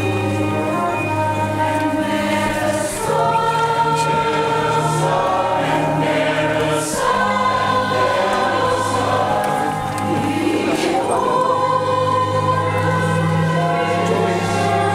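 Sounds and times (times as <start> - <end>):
mixed choir singing in harmony: 0.0 - 14.9.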